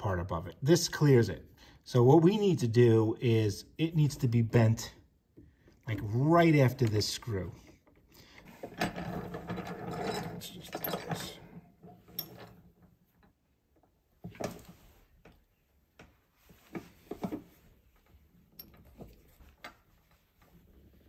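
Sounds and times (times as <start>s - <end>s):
vise mechanism rattling: 7.8s - 12.9s.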